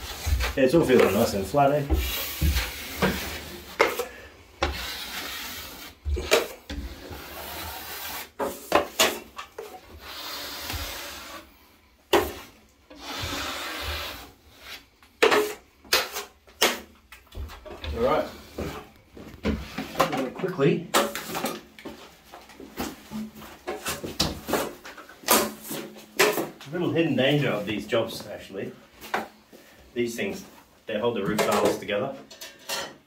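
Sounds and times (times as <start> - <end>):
taping knife scraping plaster: 4.6 - 8.7.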